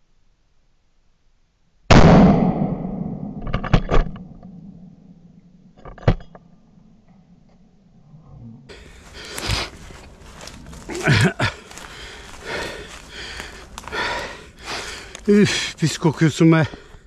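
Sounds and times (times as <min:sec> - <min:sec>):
shotgun shot: 0:01.9 - 0:03.4.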